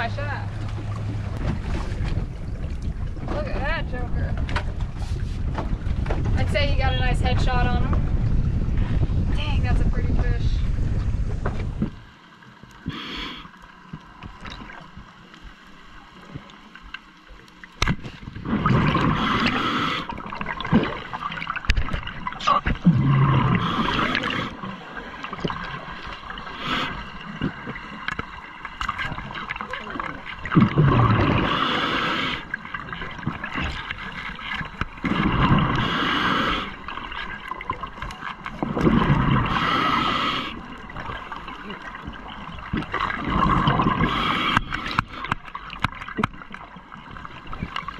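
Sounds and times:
diver inhaling through regulator: 12.8 - 13.6, 18.5 - 20.2, 23.0 - 25.1, 26.4 - 27.2, 31.1 - 32.6, 35.2 - 37.0, 39.2 - 40.7, 43.6 - 45.4
diver exhaling bubbles: 18.2 - 28.0, 28.9 - 38.0, 38.6 - 46.2.

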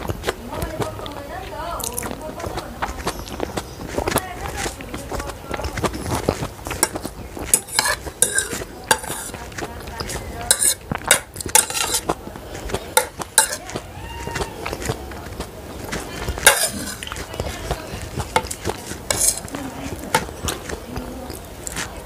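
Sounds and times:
cutlery scraping ceramic plate: 4.0 - 13.8, 14.6 - 22.0.

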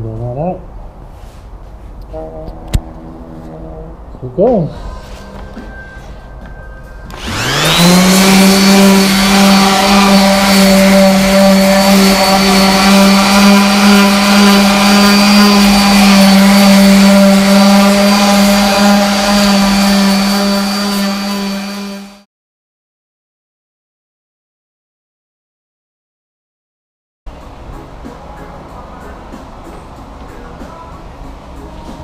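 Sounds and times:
orbital sander whining: 7.1 - 22.2.

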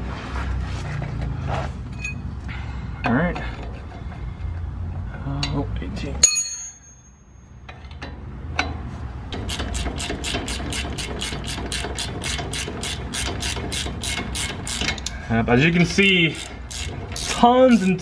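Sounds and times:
sharp metallic clink: 6.2 - 7.7
hand ratchet clicking: 9.4 - 15.2, 16.4 - 18.0.

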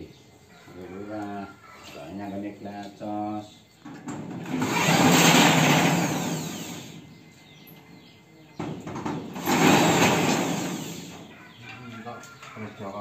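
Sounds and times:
power tool spinning a drum: 4.2 - 7.0, 9.0 - 11.3.

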